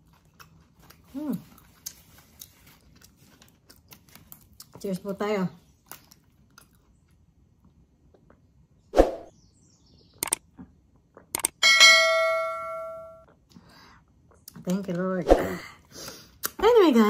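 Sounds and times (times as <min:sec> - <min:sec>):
quick clicks: 0:10.2 - 0:10.4, 0:11.3 - 0:11.6
bell chime: 0:11.6 - 0:13.2.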